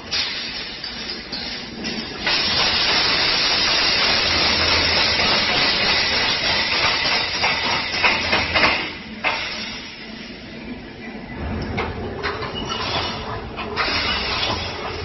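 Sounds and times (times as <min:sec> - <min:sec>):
welding machine hissing: 0:02.2 - 0:08.4.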